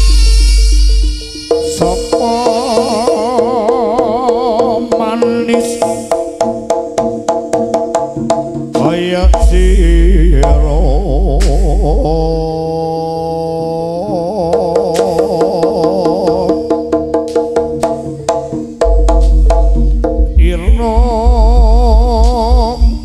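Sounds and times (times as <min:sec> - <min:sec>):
deep sustained low tone: 0:00.0 - 0:02.8, 0:09.3 - 0:13.0
drum strokes: 0:00.0 - 0:12.6, 0:14.5 - 0:23.0
wavering melodic line: 0:00.0 - 0:13.3, 0:13.9 - 0:23.0.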